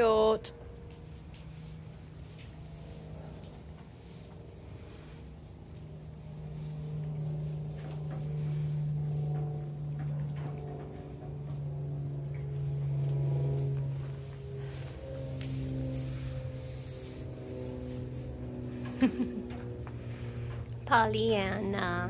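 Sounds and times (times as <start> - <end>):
low drone: 0.0 - 22.0
slow sustained notes: 5.8 - 22.0.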